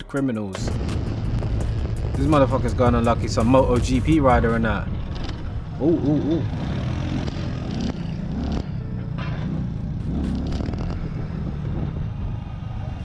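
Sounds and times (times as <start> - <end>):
motorcycle engine rumble: 0.6 - 13.0
wind on microphone: 10.6 - 13.0.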